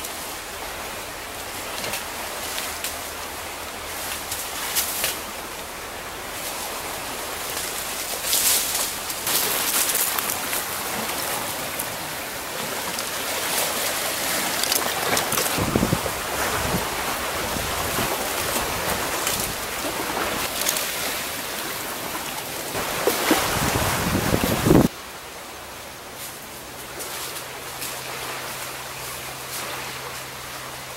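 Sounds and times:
waves washing on rocky shore: 0.0s - 30.9s
wind buffeting microphone: 15.2s - 20.5s, 23.4s - 24.9s.

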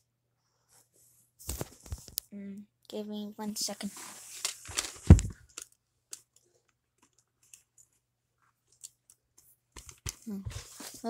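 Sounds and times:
paper sleeve rustling: 3.7s - 5.6s
loud thump: 5.0s - 5.4s.

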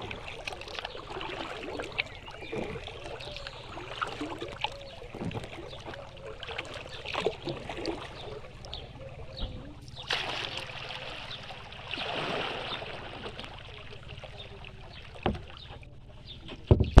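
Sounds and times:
water dripping off paddle: 0.0s - 16.9s
paddle splashing in water: 0.0s - 17.0s
dull knock: 16.5s - 17.0s.

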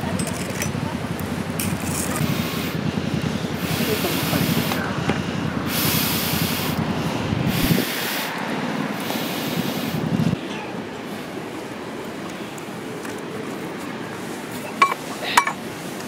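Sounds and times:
breathy air rushes through pipe: 2.2s - 10.4s.

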